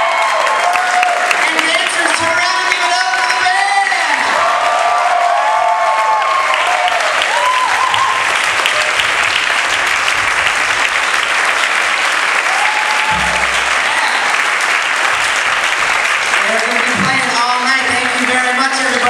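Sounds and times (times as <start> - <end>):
audience applauding: 0.0 - 19.0
people cheering: 0.0 - 19.0
low thud: 13.0 - 14.3.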